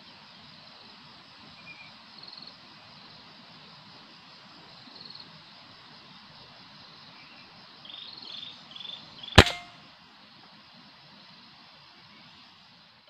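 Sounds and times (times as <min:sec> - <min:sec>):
rifle shot: 0:09.4 - 0:09.7.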